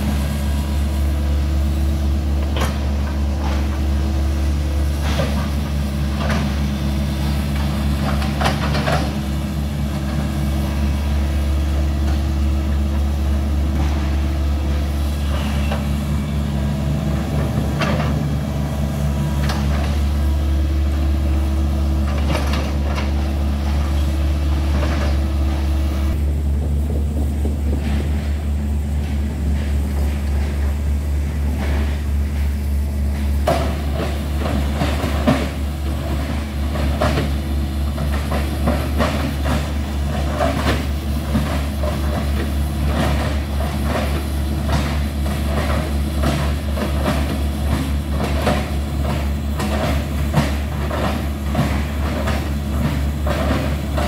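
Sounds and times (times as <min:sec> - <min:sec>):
excavator diesel engine running: 0:00.0 - 0:54.0
machine knocks and clanks: 0:01.2 - 0:54.0.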